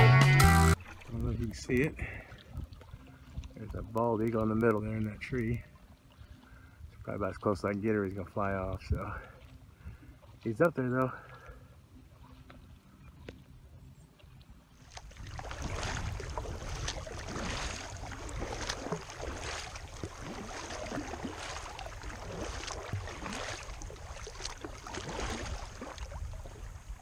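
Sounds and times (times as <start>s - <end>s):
paddle strokes splashing in water: 0.5s - 27.0s
wind rumble on microphone: 1.1s - 5.7s, 6.8s - 10.1s, 14.8s - 27.0s.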